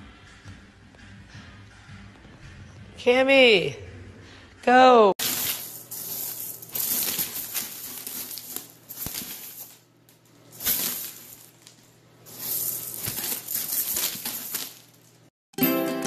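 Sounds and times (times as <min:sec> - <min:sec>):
small pet digging through pellets: 0:05.2 - 0:09.8, 0:12.3 - 0:15.1.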